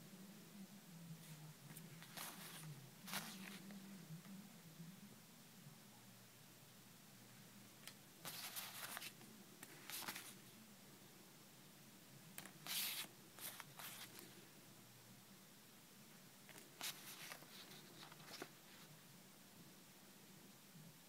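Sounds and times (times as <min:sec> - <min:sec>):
faint background hum: 0:00.0 - 0:21.0
paper rustling and sliding: 0:01.2 - 0:03.7, 0:08.2 - 0:10.4, 0:12.4 - 0:14.3, 0:16.5 - 0:18.9.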